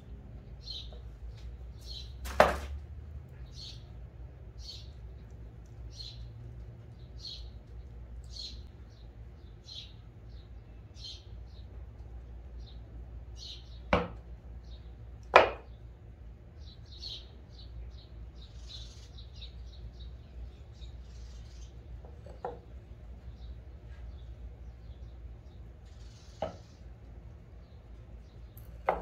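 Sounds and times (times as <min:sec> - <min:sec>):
small birds chirping: 0:00.0 - 0:29.0
wooden boards knocking together: 0:02.2 - 0:02.8, 0:15.4 - 0:15.7.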